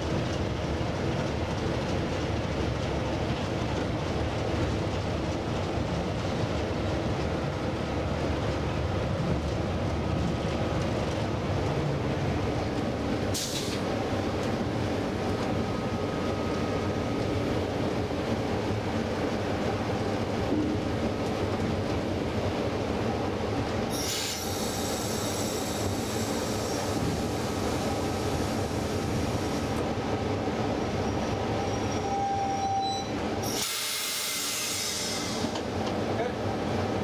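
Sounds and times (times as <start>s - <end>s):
diesel locomotive engine running: 0.0s - 32.2s
air hiss: 13.4s - 13.8s, 23.9s - 27.6s.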